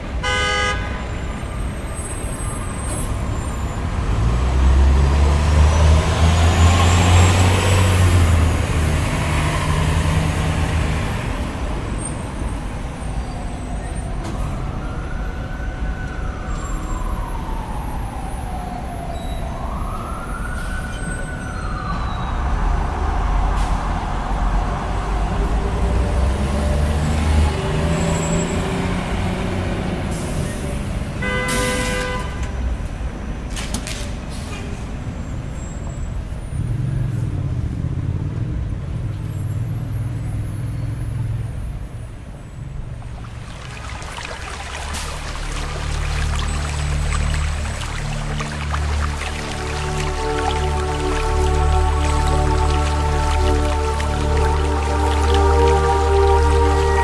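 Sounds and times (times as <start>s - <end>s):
siren wailing: 12.6s - 24.4s, 45.3s - 57.0s
heavy vehicle engine rumbling past: 20.1s - 32.0s.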